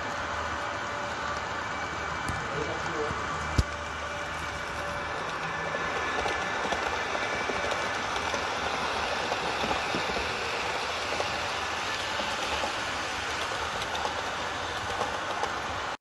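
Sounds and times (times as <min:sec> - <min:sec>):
model train rolling on track: 0:00.0 - 0:16.0
small track clicks: 0:02.2 - 0:16.0.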